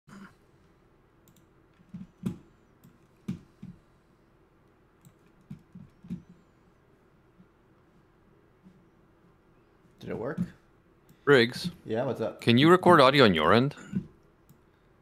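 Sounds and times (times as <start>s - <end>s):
keyboard and mouse clicks: 1.2s - 3.8s, 5.0s - 6.4s.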